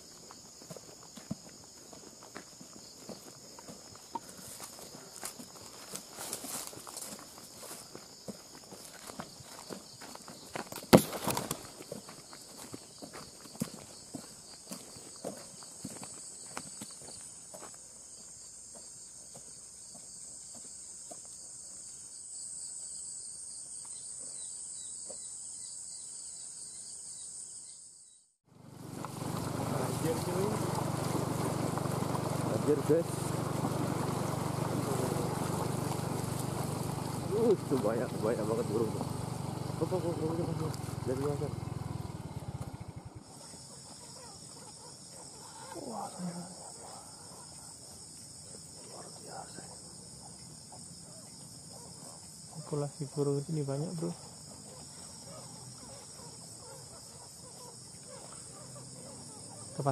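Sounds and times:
footsteps on grass: 0:00.0 - 0:22.1, 0:28.7 - 0:41.9
high-pitched insect chorus: 0:00.0 - 0:28.3, 0:28.9 - 0:59.9
engine idling: 0:28.5 - 0:43.6.

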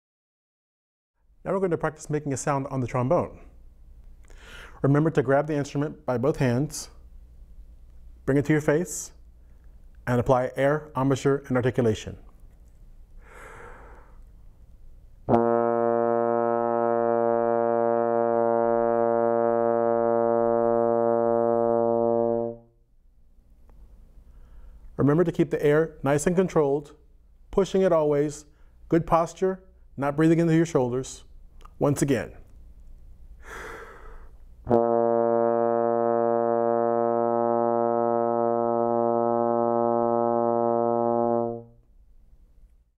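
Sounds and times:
trombone long low note: 0:15.3 - 0:22.7, 0:34.7 - 0:41.8.

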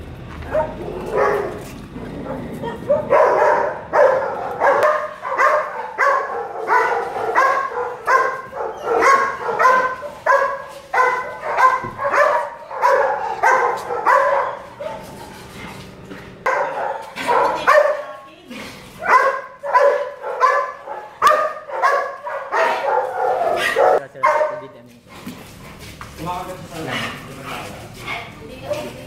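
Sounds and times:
dog barking: 0:00.5 - 0:15.4, 0:16.4 - 0:18.3, 0:19.0 - 0:24.7, 0:28.1 - 0:29.0.

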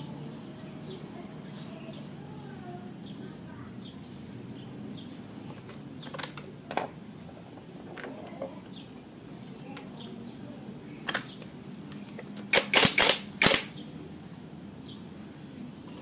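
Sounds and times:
impact wrench hammering: 0:12.5 - 0:14.0
light metal clinks: 0:12.6 - 0:14.0.

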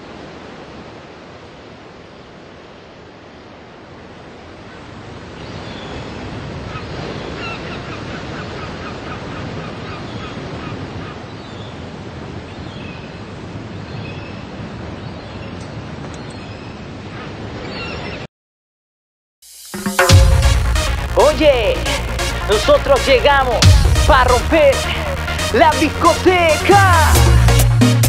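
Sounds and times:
ocean surf washing onto beach: 0:00.0 - 0:15.0, 0:19.7 - 0:27.1.

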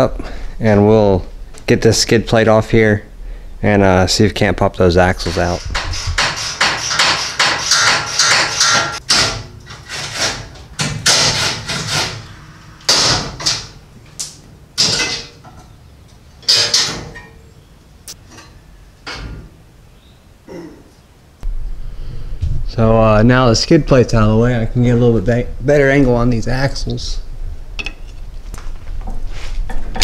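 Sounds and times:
sharp metal strokes: 0:05.2 - 0:13.8.

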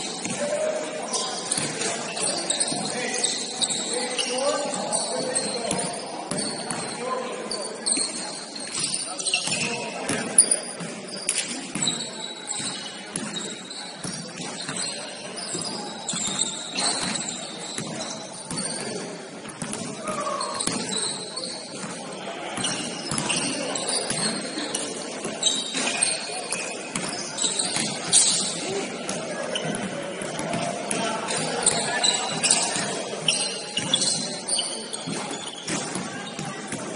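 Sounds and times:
scattered voices: 0:00.0 - 0:36.9
sneaker squeaks: 0:00.0 - 0:36.9
basketball bouncing on court: 0:05.4 - 0:07.0, 0:11.7 - 0:21.1, 0:22.6 - 0:24.4, 0:26.5 - 0:28.4, 0:29.1 - 0:33.0.

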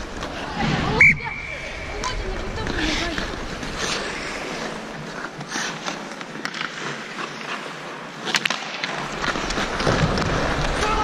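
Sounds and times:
ice skate blades scraping ice: 0:02.6 - 0:11.0.

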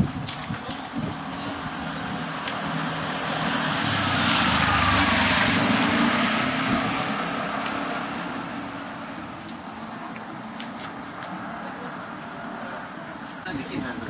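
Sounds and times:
car passing: 0:01.1 - 0:09.4.

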